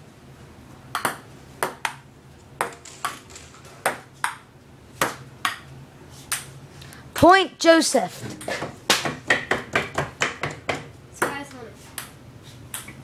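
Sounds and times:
ping pong ball clicking: 0.9 - 2.0, 3.8 - 4.4, 12.0 - 13.0.

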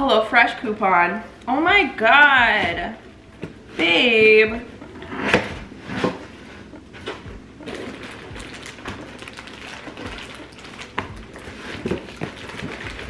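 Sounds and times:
cardboard rustling and scraping: 5.0 - 13.0.

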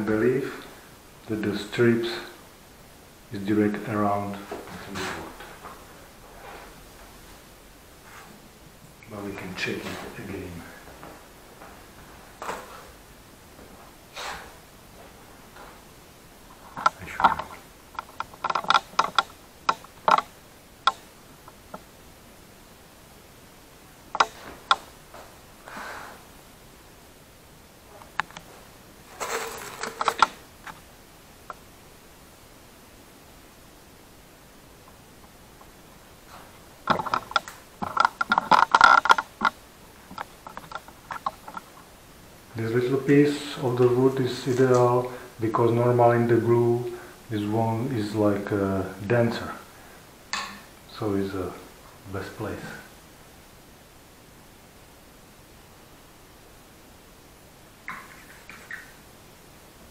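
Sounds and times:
handling clicks and knocks: 16.7 - 21.0, 29.2 - 30.8, 36.9 - 41.7
camera handling clicks and rattles: 29.2 - 30.3.

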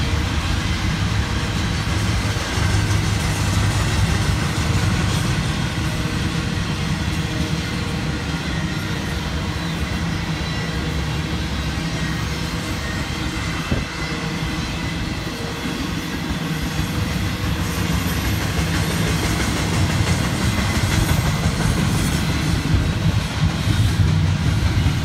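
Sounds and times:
train wheels rumbling on rails: 0.0 - 25.0.

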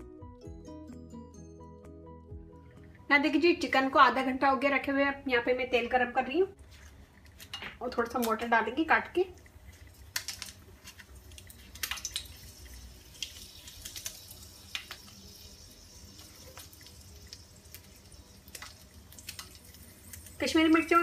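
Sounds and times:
oil sizzling: 6.6 - 21.0.

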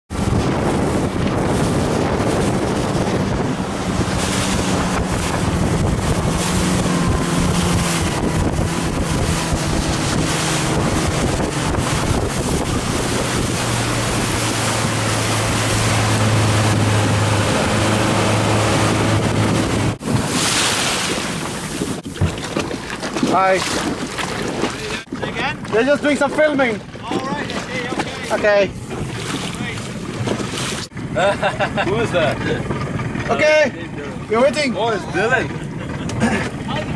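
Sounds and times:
engine running: 0.1 - 20.2, 23.9 - 36.9
wind noise on microphone: 0.1 - 31.4.

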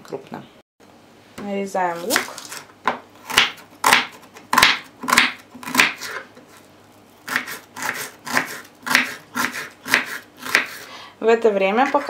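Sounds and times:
knife chopping on wooden board: 2.1 - 6.5, 7.3 - 10.8.

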